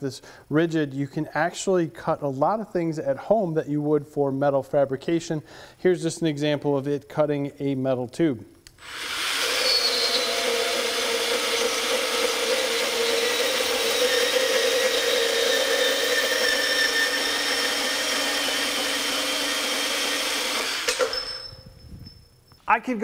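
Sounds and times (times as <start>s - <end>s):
band saw cutting metal tube: 8.8s - 21.5s.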